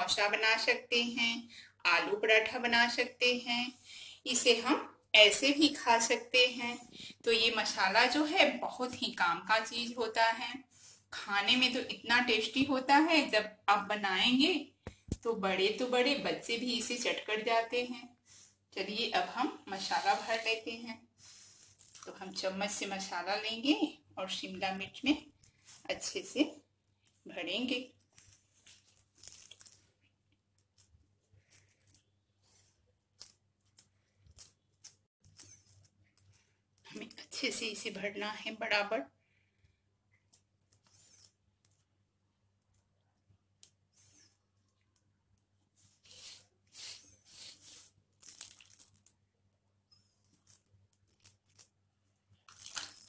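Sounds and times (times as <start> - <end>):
metal spoon scraping and squishing: 30.6 - 36.4, 49.9 - 53.0.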